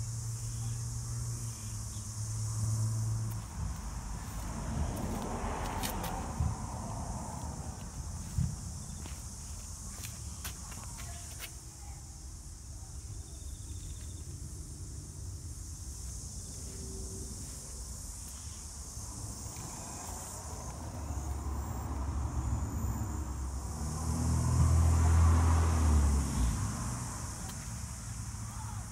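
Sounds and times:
high-pitched insect chirring: 0:00.0 - 0:04.2
vehicle engine approaching: 0:00.0 - 0:09.8, 0:16.2 - 0:28.9
low traffic rumble: 0:00.0 - 0:28.9.

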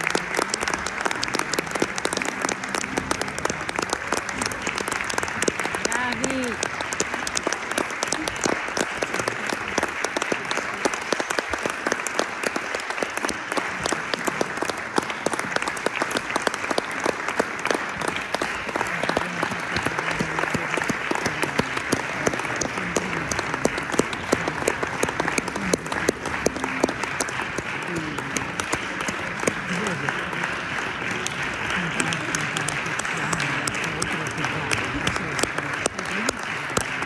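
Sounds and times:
audience applauding: 0:00.0 - 0:37.0.

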